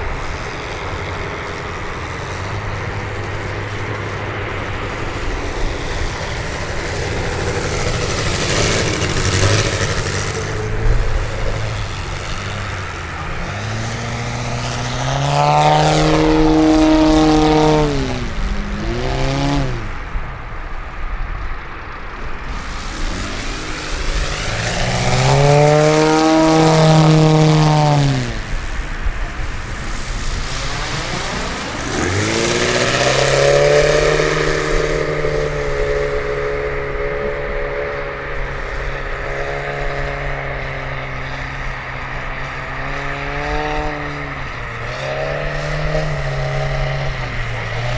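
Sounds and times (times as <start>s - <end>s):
model plane engine and propeller: 0.0s - 47.9s.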